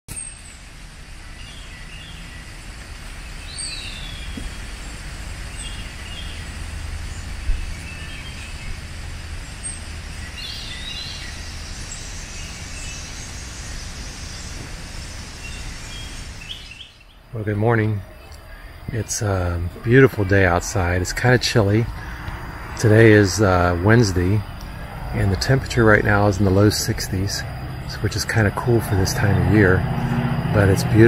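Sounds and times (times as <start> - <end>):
songbirds chirping: 0.1 - 31.0
steady low rumble: 0.6 - 31.0
thump: 4.4 - 4.6, 14.6 - 14.8.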